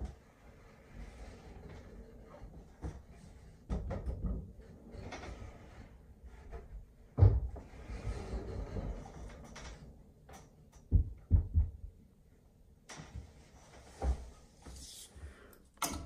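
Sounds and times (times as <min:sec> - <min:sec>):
wooden door knocks and thumps: 0:10.8 - 0:12.0.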